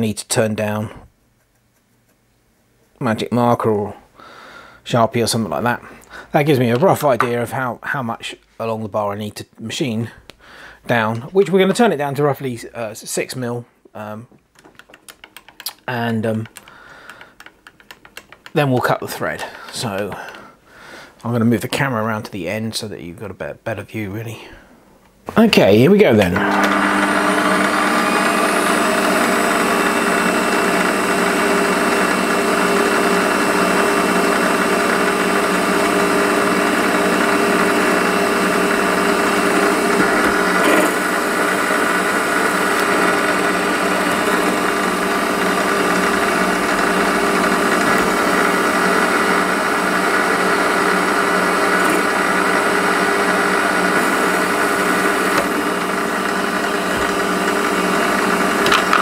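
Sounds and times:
lathe click: 26.3s - 59.0s
metal lathe whining: 26.4s - 59.0s.

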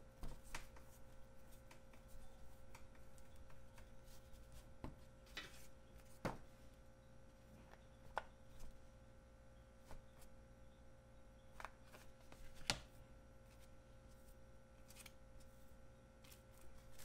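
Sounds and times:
hands rolling dough on board: 0.0s - 6.6s.

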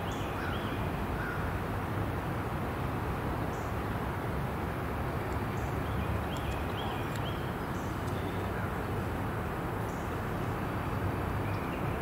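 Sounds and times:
bird chirps: 5.6s - 8.7s.

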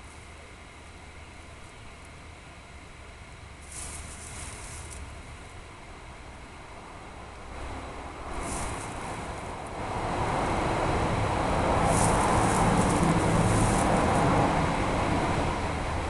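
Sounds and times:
vehicle road rumble passing: 6.8s - 16.0s.

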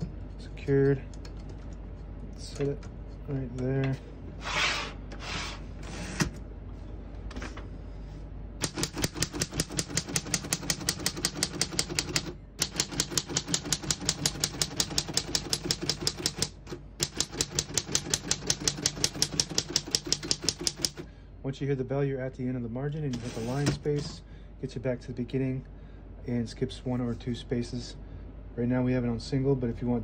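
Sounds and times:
typewriter keys striking: 8.6s - 21.0s.

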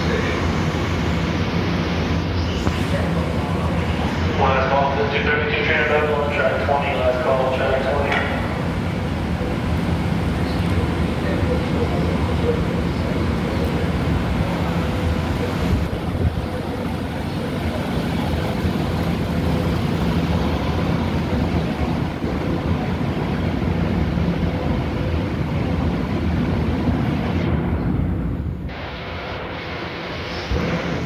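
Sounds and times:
constant wash of noise: 0.0s - 31.0s
machinery drone: 0.0s - 31.0s.

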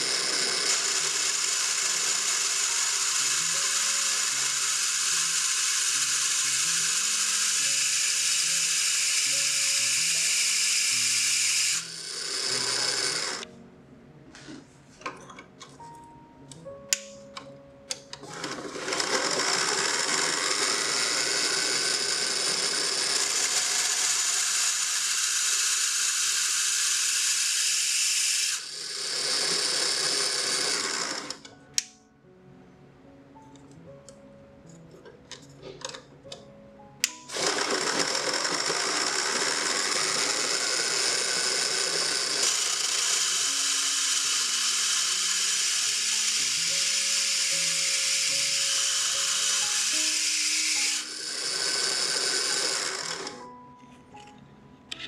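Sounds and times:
band saw whining: 0.0s - 13.5s, 18.2s - 31.5s, 37.0s - 53.6s
saw blade cutting metal: 0.0s - 13.5s, 18.3s - 31.4s, 37.0s - 53.5s.

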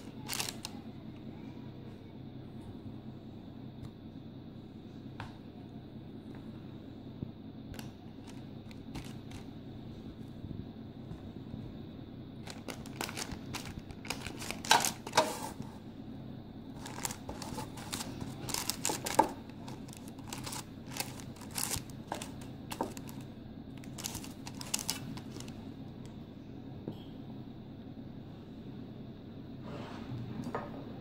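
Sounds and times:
baking paper crinkling: 0.0s - 0.8s, 7.8s - 9.5s, 12.4s - 15.8s, 16.8s - 25.6s
steady low hum: 0.0s - 31.0s.

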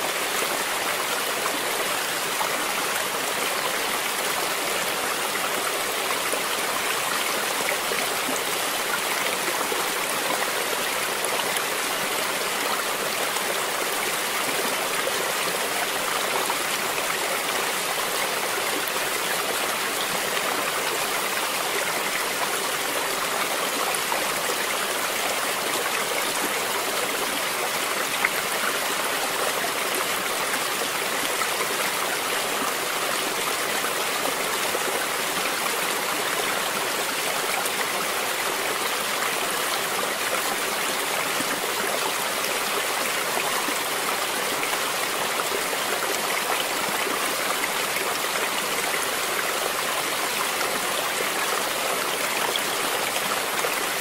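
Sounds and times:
river water flowing over rocks: 0.0s - 54.0s.

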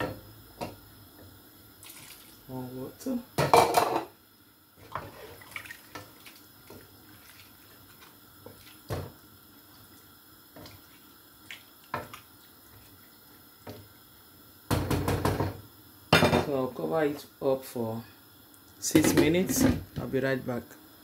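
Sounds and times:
broth sloshing in a pot: 1.8s - 2.6s, 4.7s - 14.3s.

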